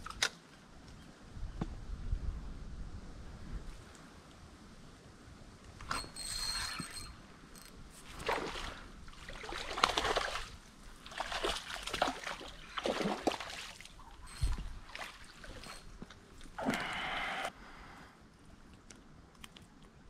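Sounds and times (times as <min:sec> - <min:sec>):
fish splashing in water: 0:08.2 - 0:14.0.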